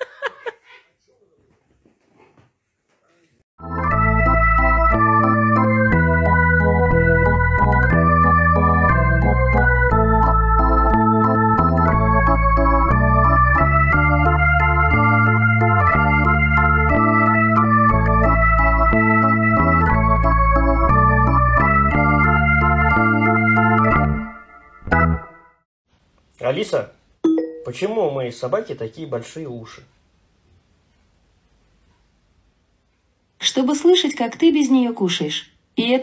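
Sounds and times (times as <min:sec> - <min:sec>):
organ playing held chords: 0:03.6 - 0:25.5.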